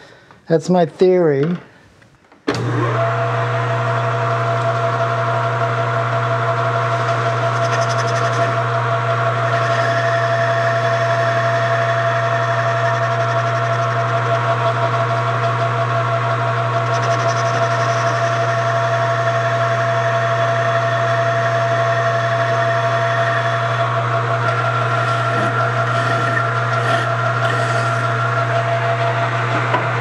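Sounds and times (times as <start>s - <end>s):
metal lathe humming and whining: 2.6s - 30.0s
cutting tool scraping metal: 7.5s - 8.6s, 16.8s - 18.4s, 24.4s - 28.7s
hand file scratching metal: 24.4s - 28.2s.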